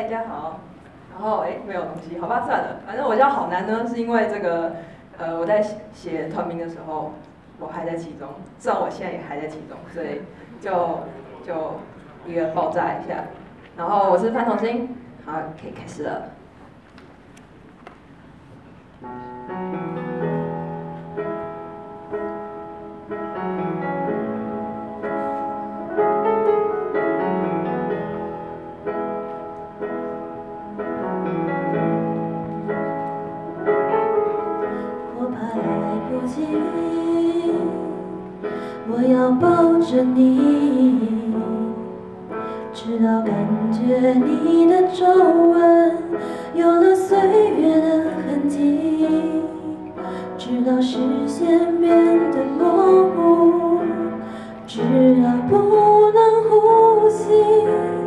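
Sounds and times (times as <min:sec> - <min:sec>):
piano ballad: 0:18.0 - 0:58.0
woman singing into a microphone: 0:34.7 - 0:58.0.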